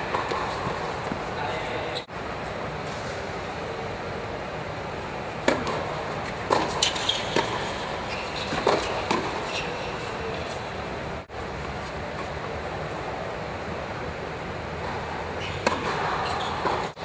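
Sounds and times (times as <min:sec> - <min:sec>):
ball bouncing on court: 0:00.0 - 0:01.3, 0:05.4 - 0:09.6, 0:14.9 - 0:17.0
tennis racket hitting ball: 0:00.0 - 0:01.4, 0:05.4 - 0:10.6, 0:14.8 - 0:17.0
shoes squeaking on hard court: 0:00.0 - 0:02.1, 0:05.6 - 0:12.4, 0:14.9 - 0:17.0
steady background hum: 0:00.0 - 0:17.0.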